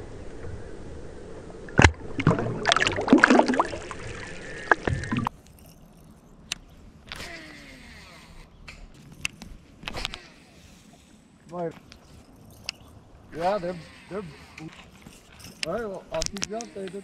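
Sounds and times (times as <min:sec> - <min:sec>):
sharp clicks: 0:15.6 - 0:17.0.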